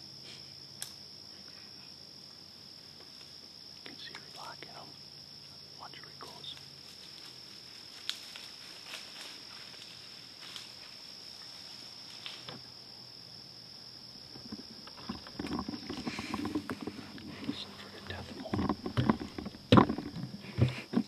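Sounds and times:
high insect trill: 0.0s - 21.0s
faint clicks and rustles: 14.3s - 21.0s.

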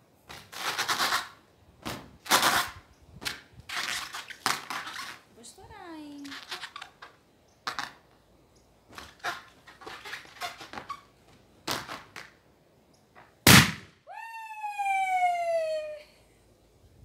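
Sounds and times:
fingernails scratching balloon: 6.2s - 7.1s
balloon bursting with loud bang: 13.4s - 13.9s
woman's long falling cry: 14.1s - 16.2s.

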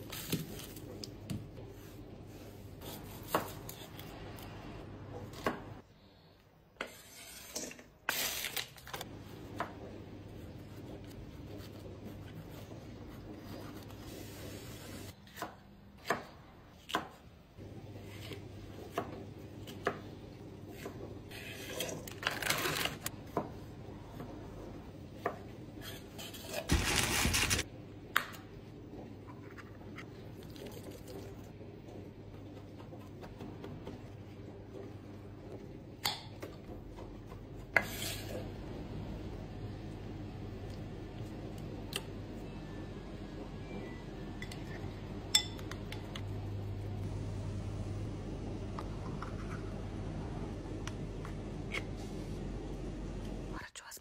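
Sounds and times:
steady low hum: 31.4s - 53.7s.

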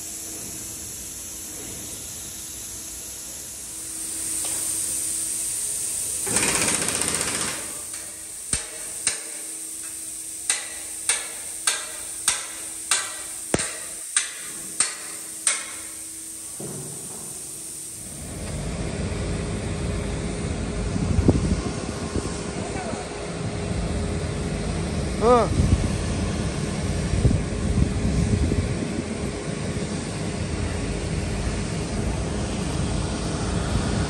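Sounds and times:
burst of hiss: 0.0s - 18.5s
hammer striking steel: 7.5s - 17.4s.

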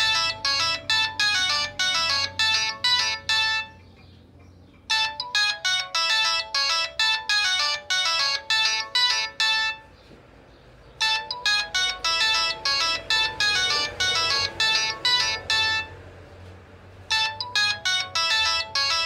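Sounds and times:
cell phone ringtone: 0.0s - 4.0s, 4.8s - 10.1s, 10.9s - 16.2s, 17.0s - 19.0s.

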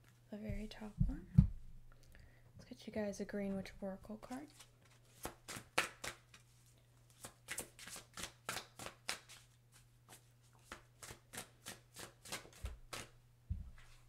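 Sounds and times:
cards being shuffled: 4.5s - 13.1s.

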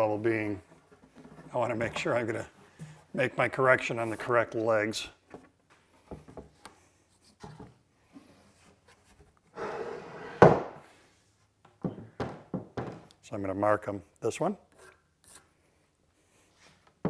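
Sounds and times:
table thumping down: 9.6s - 10.8s, 11.8s - 13.1s.

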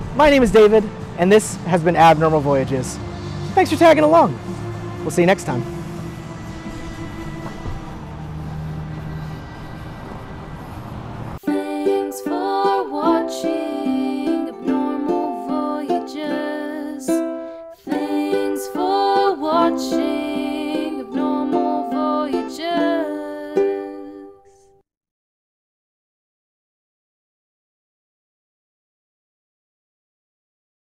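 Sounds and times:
low steady drone: 0.0s - 11.4s
rhythmic plucked-string tune: 11.4s - 24.2s.

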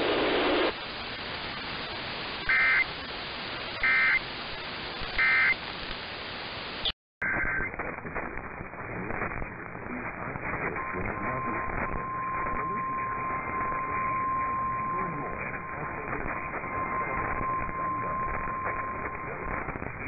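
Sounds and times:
radio static hiss: 0.0s - 20.0s
warbling data tone bursts: 10.8s - 19.8s.

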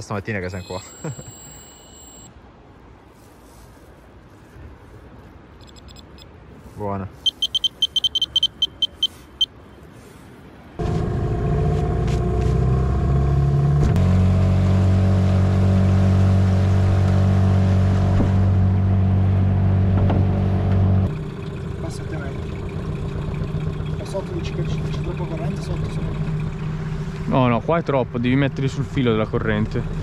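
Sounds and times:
electronic bite alarm beeping: 0.6s - 2.3s, 5.6s - 6.2s, 7.2s - 9.5s
outboard motor running: 21.1s - 30.0s.

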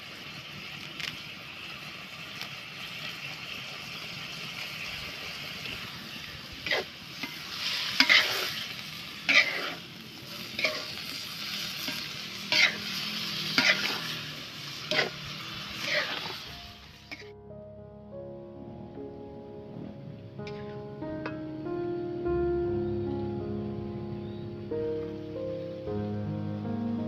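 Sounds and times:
food sizzling in a wok: 0.0s - 17.4s
spatula scraping pan: 6.6s - 9.9s, 10.6s - 17.3s.

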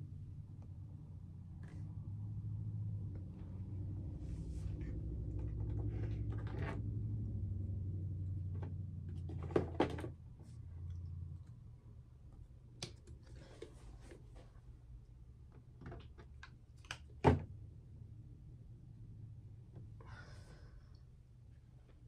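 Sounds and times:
low hum: 0.0s - 9.5s.

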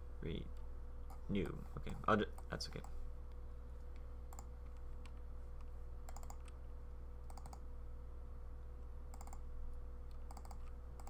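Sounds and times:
steady electrical hum: 0.0s - 11.0s
computer mouse clicks: 3.9s - 6.6s, 7.2s - 7.6s, 9.1s - 9.4s, 10.0s - 11.0s.

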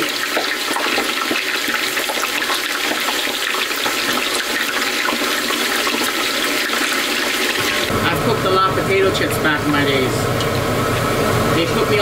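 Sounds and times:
potato slices sizzling in oil: 0.0s - 7.9s.

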